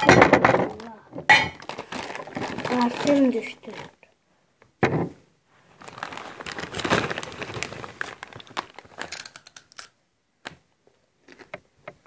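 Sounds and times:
plastic packets crinkling: 0.0s - 4.1s, 5.7s - 9.9s.

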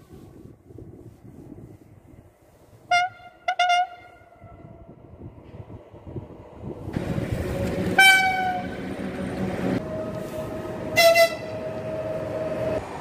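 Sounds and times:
rumble of passing train: 0.0s - 13.0s
train horn blasts: 2.9s - 4.5s, 7.8s - 8.8s, 9.9s - 12.1s.

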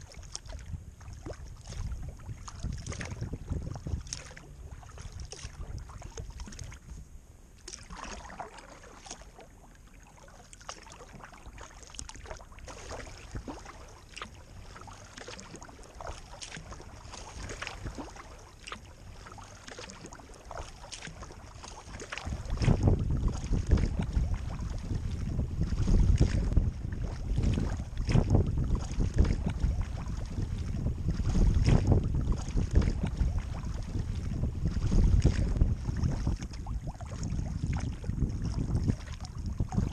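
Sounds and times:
wind buffeting microphone: 0.0s - 7.3s, 16.0s - 18.4s, 21.0s - 39.9s
paddle splashing water: 0.0s - 39.9s.

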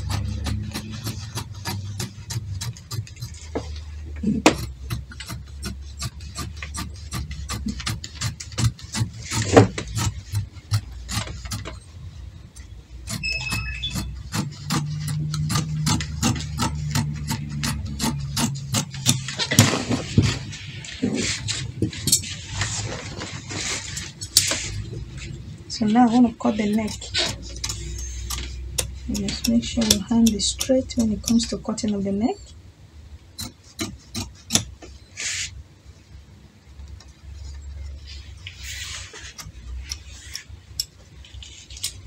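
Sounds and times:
scissors snipping through cloth: 26.7s - 31.6s.

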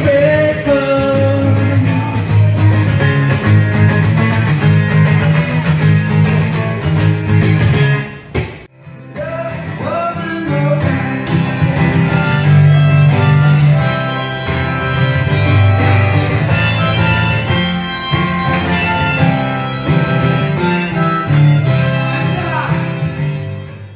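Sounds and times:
man singing: 0.0s - 3.1s, 9.1s - 13.7s, 21.6s - 23.6s
acoustic guitar strumming: 0.0s - 23.9s.

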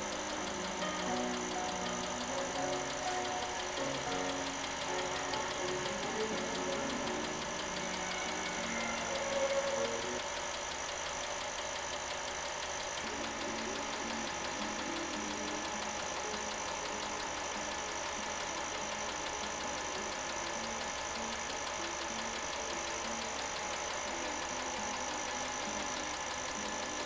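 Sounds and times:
film projector whirring and clattering: 0.0s - 27.0s.

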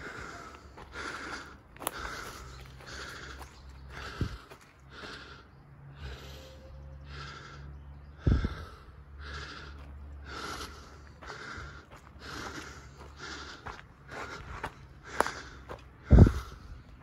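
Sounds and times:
footsteps on dirt path: 0.0s - 5.5s, 8.3s - 17.0s
person breathing hard: 0.0s - 17.0s
low microphone rumble: 6.0s - 17.0s.

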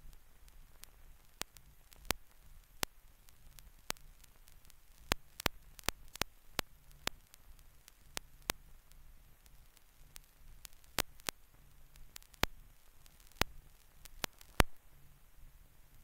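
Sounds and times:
sharp clicks and pops: 0.0s - 14.9s
film soundtrack hiss and hum: 0.0s - 16.0s.

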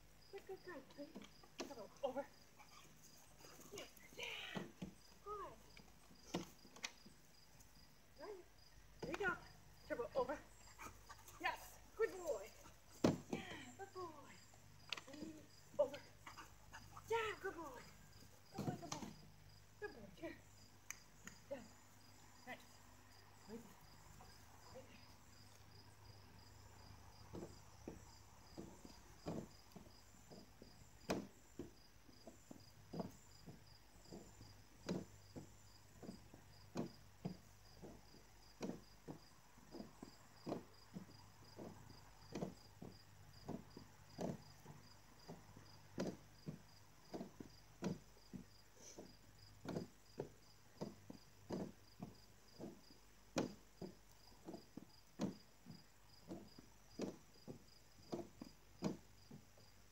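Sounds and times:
insects chirping: 0.0s - 59.9s
feet knocking on plastic step: 27.1s - 59.8s.

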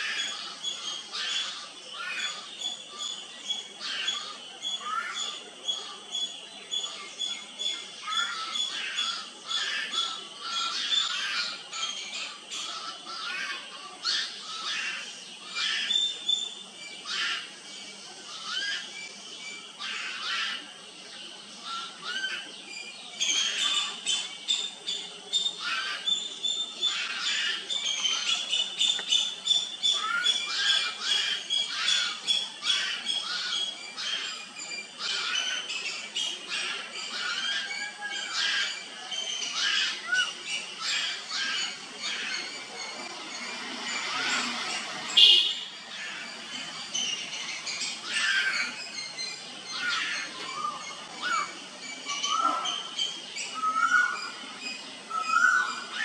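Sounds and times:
young birds squawking: 6.8s - 16.2s, 17.0s - 20.9s, 25.5s - 26.2s, 26.8s - 43.0s, 43.6s - 54.4s.

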